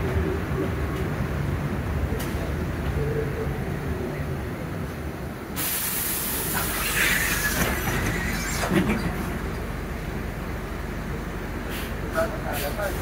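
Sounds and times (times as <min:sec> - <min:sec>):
bus engine rumbling: 0:00.0 - 0:13.0
air brake hiss: 0:05.6 - 0:07.6, 0:11.6 - 0:12.8.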